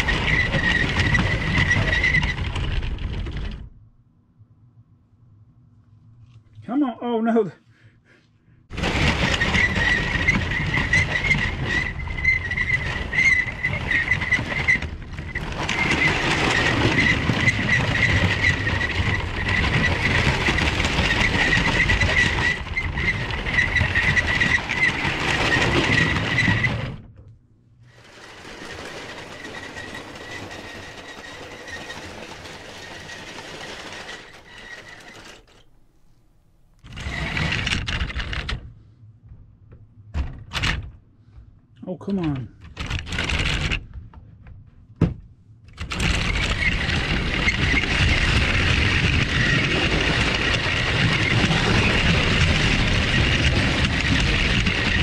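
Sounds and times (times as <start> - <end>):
wheels rattling on plastic track: 0.0 - 3.8, 8.7 - 27.0, 27.9 - 35.7, 36.8 - 38.6, 42.6 - 44.0, 45.7 - 55.0
toy train motor whining: 8.8 - 26.8, 27.9 - 35.7, 45.9 - 55.0.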